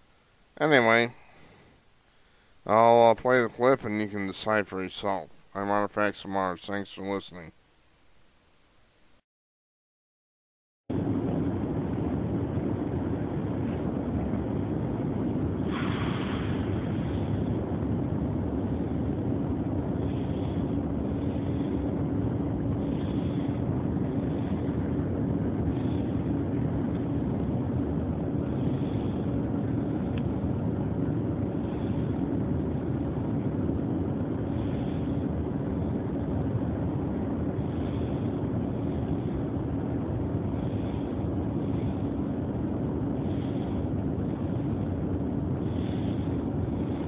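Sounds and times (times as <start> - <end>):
steady rushing noise: 0.0 - 9.2, 10.9 - 47.0
low hum: 10.9 - 47.0.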